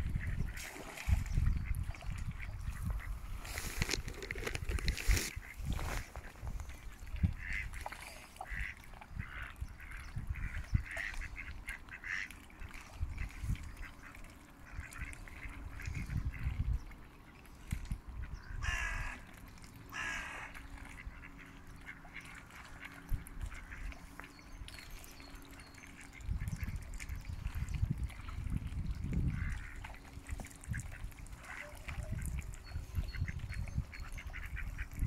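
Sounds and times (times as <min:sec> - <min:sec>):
ducks quacking: 0:07.2 - 0:16.6, 0:19.9 - 0:24.4, 0:29.2 - 0:35.0.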